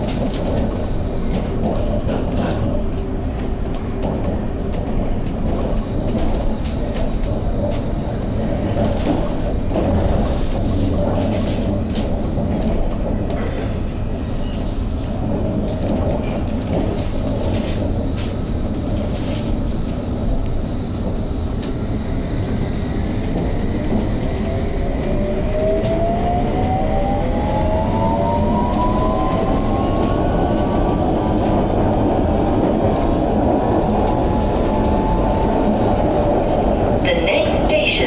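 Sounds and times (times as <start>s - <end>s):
train rumbling on rails: 0.0s - 38.0s.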